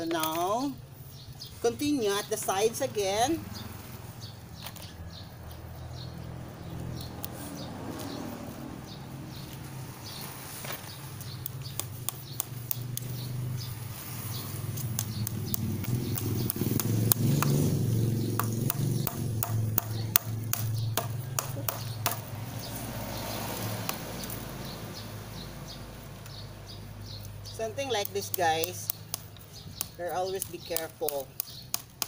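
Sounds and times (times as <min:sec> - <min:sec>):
hammer striking nails: 0:18.4 - 0:22.2.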